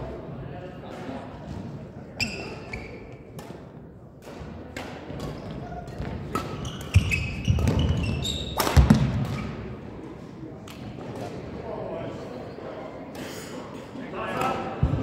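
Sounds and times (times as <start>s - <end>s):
shoes squeaking: 2.2s - 3.2s, 5.7s - 9.5s
racket hitting shuttlecock: 3.3s - 9.5s.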